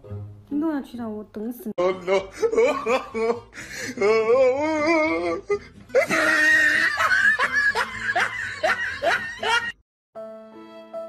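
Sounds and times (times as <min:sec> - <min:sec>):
person laughing: 0:01.8 - 0:09.8.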